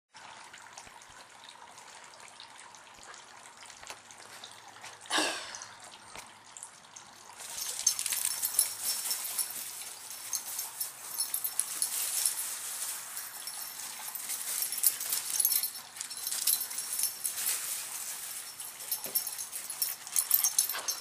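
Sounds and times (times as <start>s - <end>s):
dog collar tags jingling: 7.2s - 21.0s.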